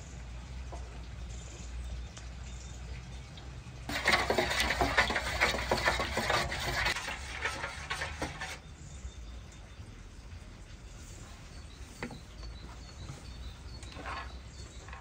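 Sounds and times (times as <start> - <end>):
spoon scraping a metal bowl: 3.9 - 8.6, 13.9 - 15.0.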